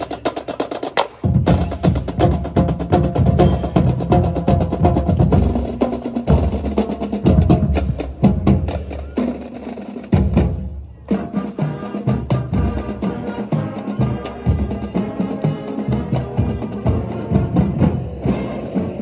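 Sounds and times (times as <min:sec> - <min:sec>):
percussion-heavy music: 0:00.0 - 0:19.0.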